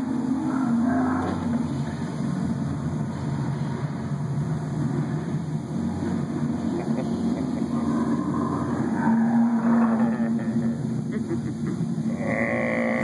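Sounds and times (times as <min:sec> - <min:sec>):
low held tone: 0:06.8 - 0:11.4.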